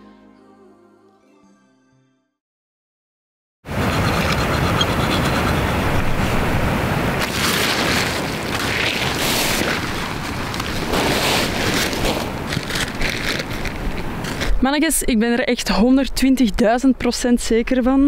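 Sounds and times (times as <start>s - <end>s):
wind buffeting microphone: 3.7s - 15.1s.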